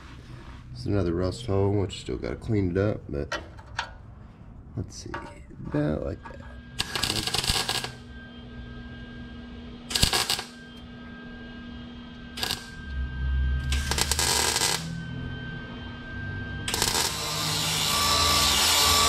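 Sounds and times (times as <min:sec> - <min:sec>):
welding arc crackling: 0:06.8 - 0:08.1, 0:09.9 - 0:10.6, 0:12.3 - 0:12.9, 0:13.6 - 0:15.0, 0:16.7 - 0:19.0.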